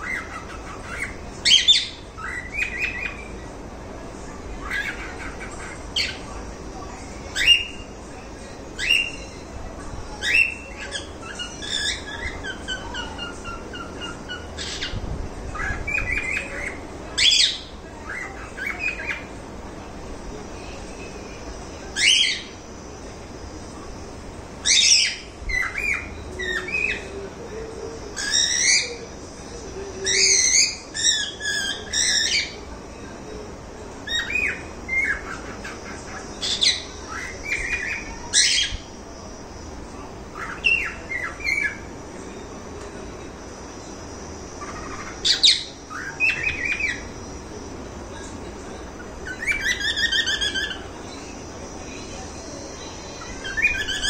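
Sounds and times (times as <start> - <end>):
cockatiels chirping: 0.0 - 3.4, 4.6 - 6.3, 10.2 - 19.3, 21.9 - 22.6, 24.6 - 27.1, 28.2 - 29.0, 30.0 - 32.6, 34.0 - 38.9, 40.3 - 41.9, 44.6 - 47.2, 48.9 - 51.4, 52.8 - 54.0.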